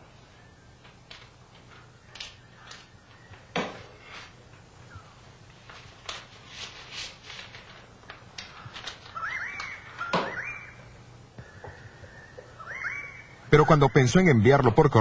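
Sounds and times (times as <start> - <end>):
paper rustling: 0.8 - 4.7, 5.4 - 10.4
steady high tone: 12.2 - 14.2.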